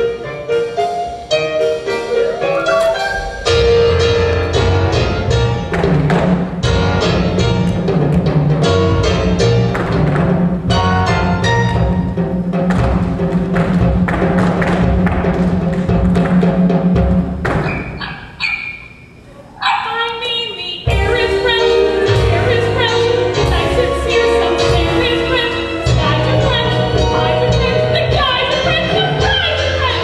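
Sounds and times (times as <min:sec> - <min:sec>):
musical theatre accompaniment: 0:00.0 - 0:30.0
drum and timpani hits: 0:02.0 - 0:18.4, 0:20.8 - 0:30.0.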